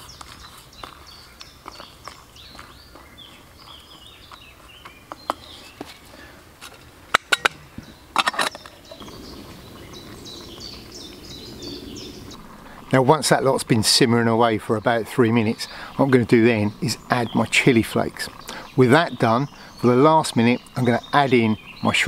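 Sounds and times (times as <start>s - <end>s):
birds chirping: 0.0s - 6.4s, 7.4s - 22.0s
soft steady rushing noise: 7.7s - 19.9s.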